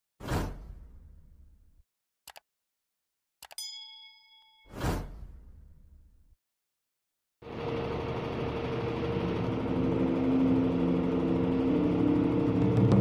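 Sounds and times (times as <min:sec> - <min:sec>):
truck diesel engine humming: 0:07.5 - 0:13.0.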